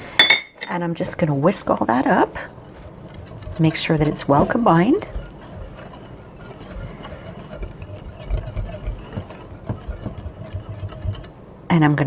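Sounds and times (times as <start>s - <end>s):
whisk clicking on bowl: 1.0s - 11.4s
whisk swishing in glass bowl: 1.0s - 11.4s.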